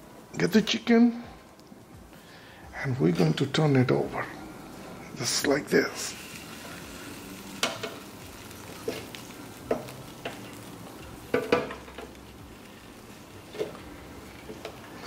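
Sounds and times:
sizzling hiss: 0.0s - 15.0s
tongs knocking on metal basket: 11.3s - 12.2s.

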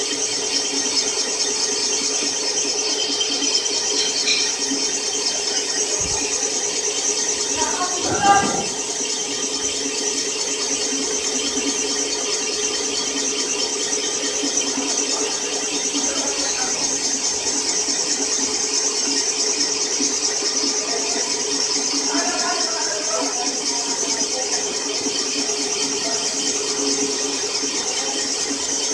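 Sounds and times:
boring machine whirring: 0.0s - 19.4s.

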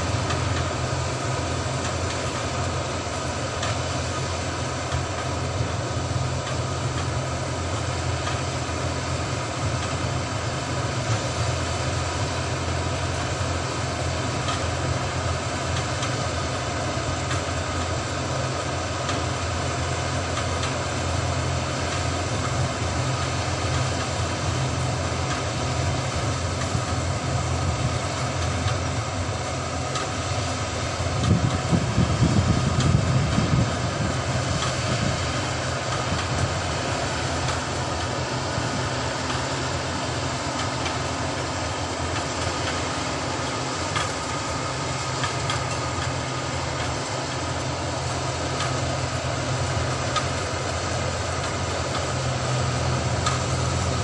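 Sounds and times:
combine harvester running: 0.0s - 54.0s.

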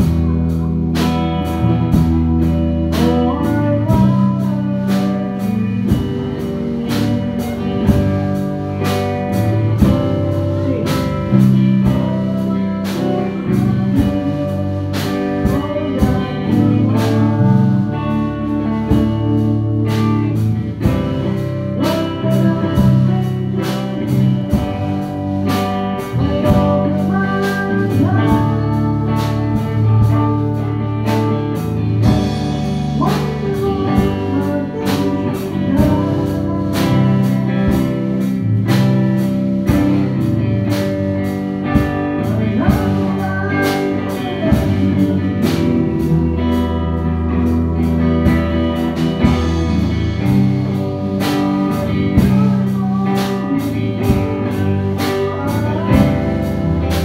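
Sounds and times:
live band playing: 0.0s - 57.0s
man singing into a microphone: 15.3s - 17.6s, 26.2s - 29.4s, 32.9s - 37.7s, 42.1s - 45.9s, 51.7s - 56.6s.

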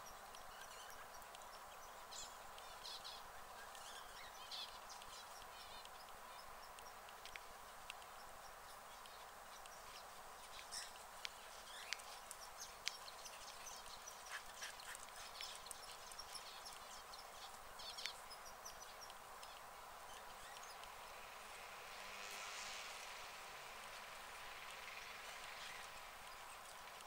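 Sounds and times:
faint steady hiss: 0.0s - 27.0s
rabbit chewing grass: 4.5s - 18.3s.

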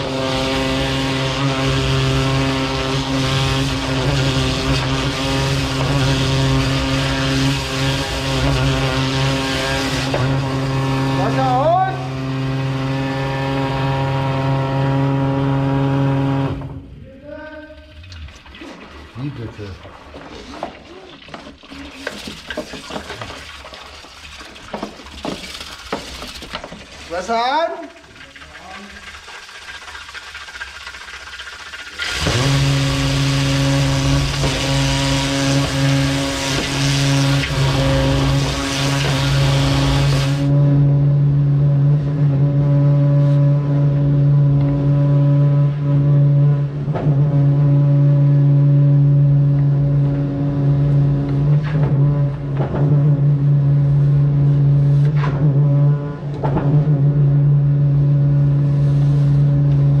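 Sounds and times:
hiss of spraying water: 0.0s - 11.1s, 18.5s - 40.5s
drain jetter humming: 0.0s - 60.0s.

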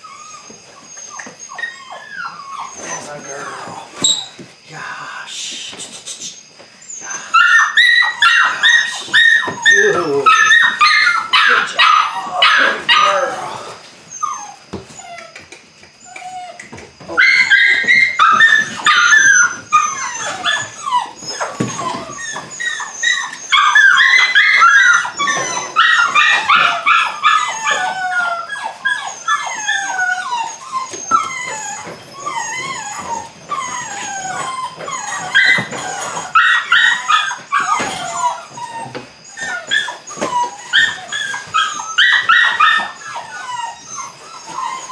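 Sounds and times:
puppies yipping and whining: 0.0s - 4.6s, 6.2s - 44.9s.

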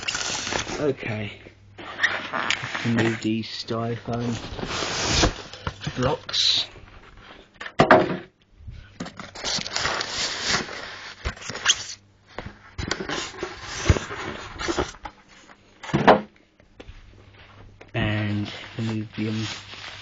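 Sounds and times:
styrofoam rubbing and scraping: 0.0s - 1.0s, 1.8s - 6.6s, 9.2s - 12.0s, 12.9s - 15.0s, 18.0s - 20.0s.

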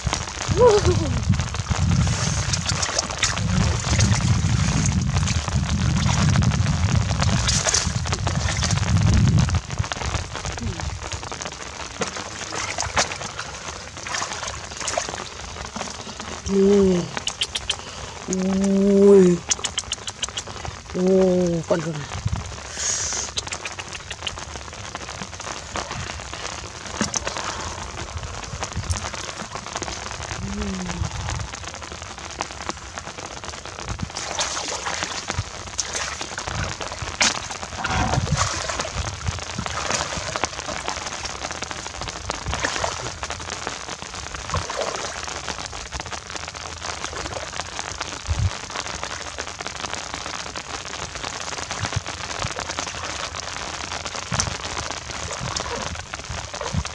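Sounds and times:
rain pattering on water: 0.0s - 56.9s
splashes from wading: 12.0s - 16.3s, 34.1s - 41.7s, 42.4s - 43.3s, 44.5s - 45.4s.

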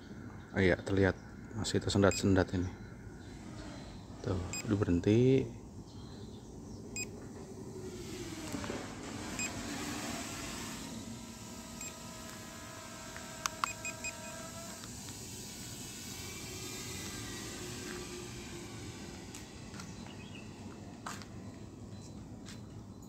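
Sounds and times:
steady hum of several tones: 0.0s - 23.0s
short electronic beeps: 4.5s - 4.7s.

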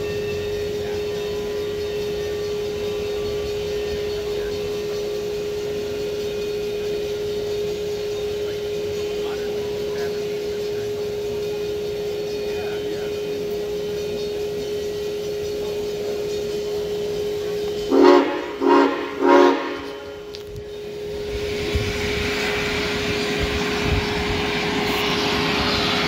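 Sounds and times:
steady hum: 0.0s - 26.0s
steam hiss: 0.0s - 26.0s
steam locomotive whistle blasts: 16.4s - 26.0s.

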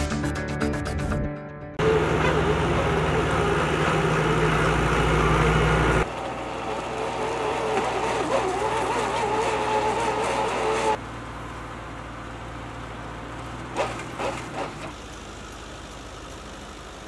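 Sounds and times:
auger drilling whine: 1.8s - 11.0s, 13.6s - 15.1s
tractor engine running: 1.8s - 17.0s.

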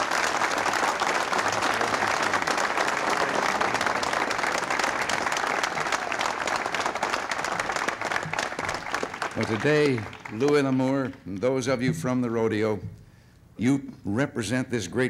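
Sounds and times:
crowd applauding: 0.0s - 11.4s.

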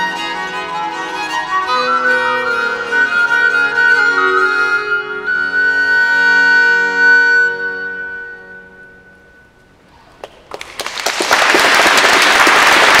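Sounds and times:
recorder and viols chord: 0.0s - 9.8s
audience applause: 10.2s - 13.0s.

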